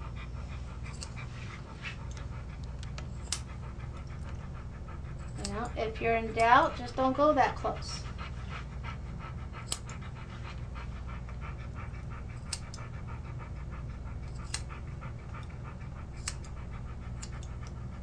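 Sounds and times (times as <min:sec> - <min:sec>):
dog panting: 0:00.0 - 0:18.0
scissors snipping: 0:02.9 - 0:03.5, 0:09.6 - 0:10.0, 0:14.3 - 0:14.7, 0:16.2 - 0:16.6, 0:17.2 - 0:17.5.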